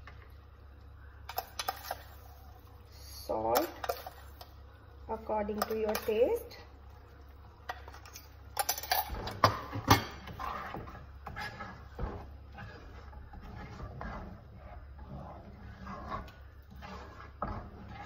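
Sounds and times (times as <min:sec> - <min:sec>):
spatula scraping pot: 0:01.3 - 0:04.6, 0:07.6 - 0:18.0.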